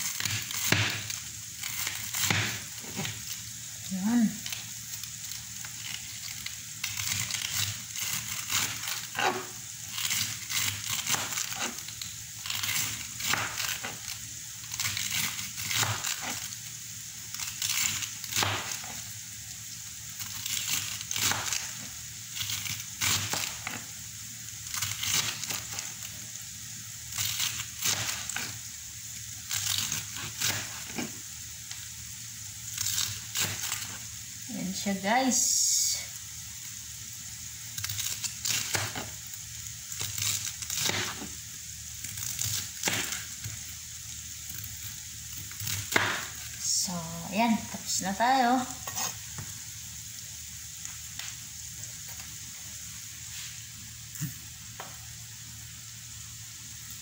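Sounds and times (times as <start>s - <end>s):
knife shredding cabbage on board: 5.7s - 16.5s, 40.0s - 41.4s.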